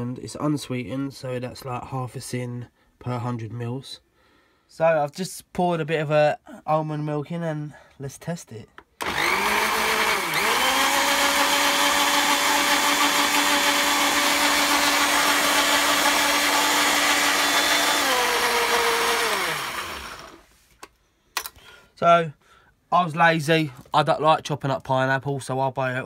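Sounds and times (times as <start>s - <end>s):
blender motor running: 9.0s - 20.5s.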